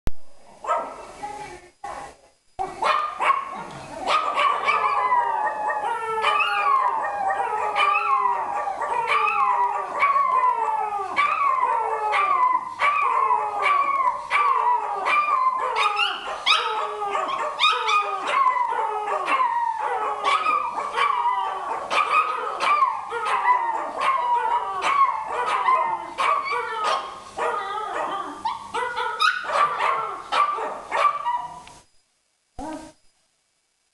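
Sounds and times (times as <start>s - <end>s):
dogs howling together: 4.0s - 31.6s.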